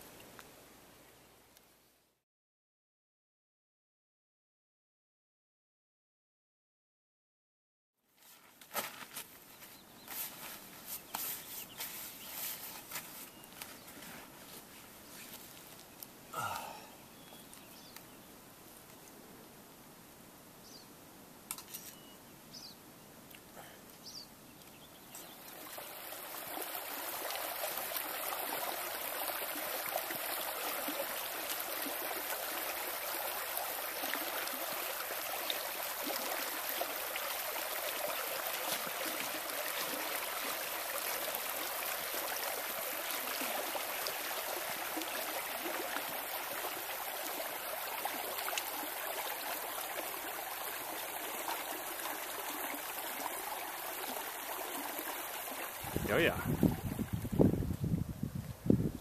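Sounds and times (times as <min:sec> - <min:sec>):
stream running: 0:08.7 - 0:19.1, 0:23.2 - 0:59.0.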